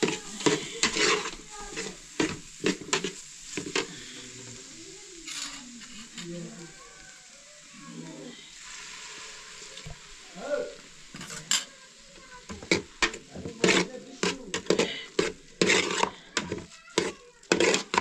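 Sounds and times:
metal ladle scraping pot: 0.0s - 3.9s, 5.3s - 6.3s, 11.1s - 11.7s, 12.5s - 18.0s
steady hiss: 0.0s - 18.0s.

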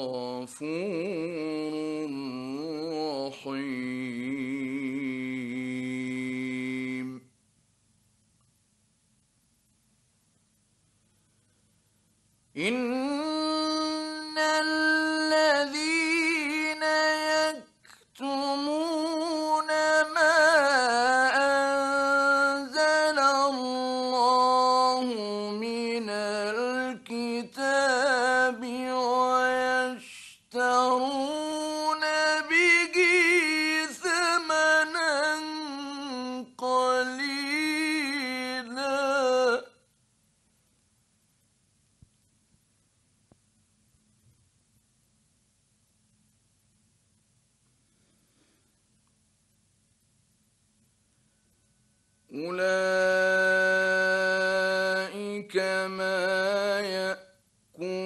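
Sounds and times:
man reciting melodically: 0.0s - 7.3s, 12.6s - 39.9s, 52.3s - 58.0s.

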